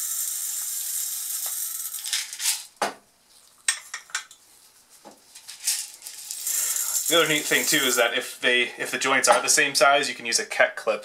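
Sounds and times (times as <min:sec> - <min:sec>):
pellets pouring through glass funnel: 0:00.0 - 0:02.7, 0:05.6 - 0:08.2.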